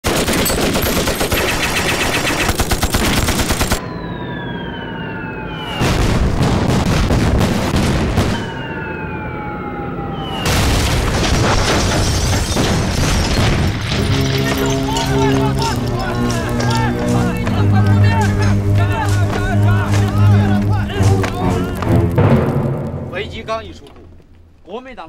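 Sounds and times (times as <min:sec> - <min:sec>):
rifle and machine-gun fire: 0:00.0 - 0:03.8, 0:05.8 - 0:08.6
descending whistle: 0:03.8 - 0:05.9, 0:08.3 - 0:10.6
explosions: 0:05.4 - 0:08.7, 0:10.2 - 0:21.2, 0:21.8 - 0:23.8.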